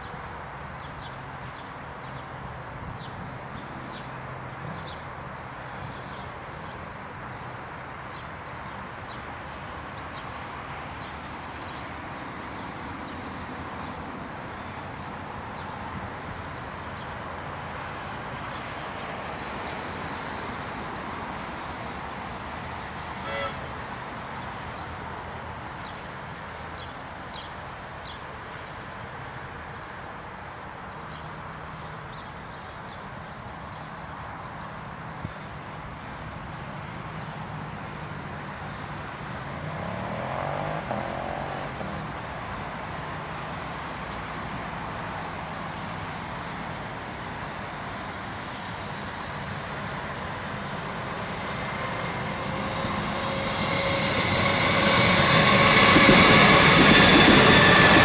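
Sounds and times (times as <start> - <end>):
outdoor background noise: 0.0 - 58.0
birds chirping: 22.6 - 23.8
electric train humming: 23.2 - 23.8, 49.4 - 58.0
train rising whine: 23.2 - 23.8, 48.9 - 58.0.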